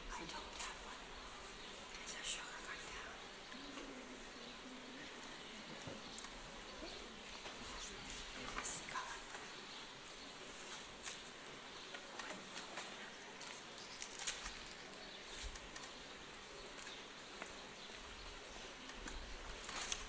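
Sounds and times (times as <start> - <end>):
faint steady hiss: 0.0 - 20.0
small clicks and ticks: 11.9 - 16.0.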